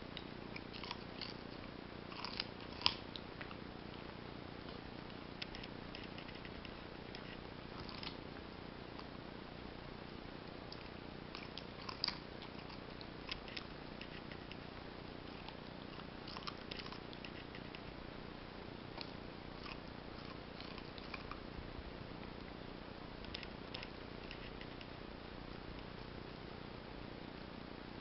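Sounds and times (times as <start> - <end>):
low hiss: 0.0 - 28.0
dog crunching carrot: 0.2 - 3.6, 5.4 - 8.2, 10.7 - 17.9, 18.9 - 21.5.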